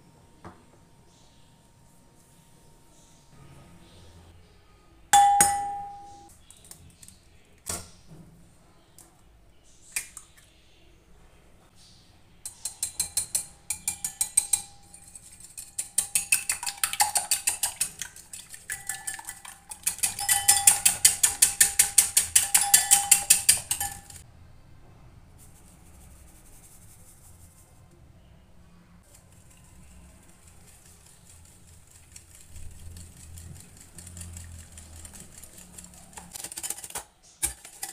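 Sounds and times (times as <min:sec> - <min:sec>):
whisk clinking against glass bowl: 0:05.2 - 0:06.3, 0:12.5 - 0:24.2.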